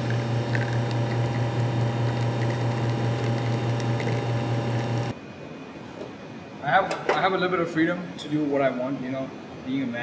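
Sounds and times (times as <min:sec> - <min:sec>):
espresso machine pump humming: 0:00.0 - 0:05.1.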